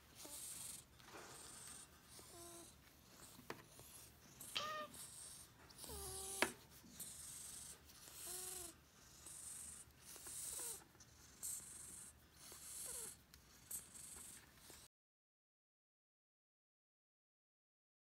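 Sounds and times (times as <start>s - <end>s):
cat mewing faintly: 4.4s - 5.0s.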